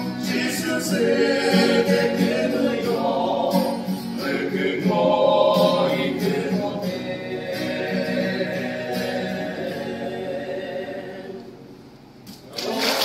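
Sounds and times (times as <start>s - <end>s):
guitar strummed steadily: 0.0s - 10.2s
male choir singing a hymn: 0.0s - 11.6s.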